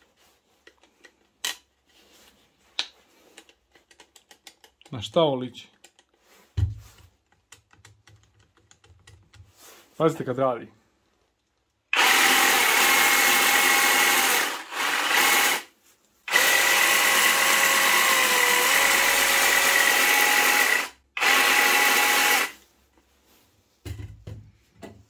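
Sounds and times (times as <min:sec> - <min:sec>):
reciprocating saw running: 0:12.0 - 0:15.7.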